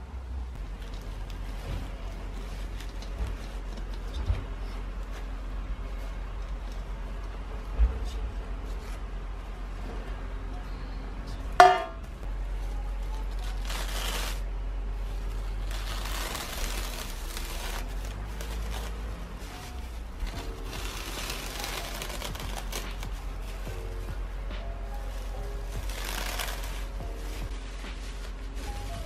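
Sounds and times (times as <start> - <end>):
cling wrap crinkling: 0.6 - 5.2, 11.6 - 29.0.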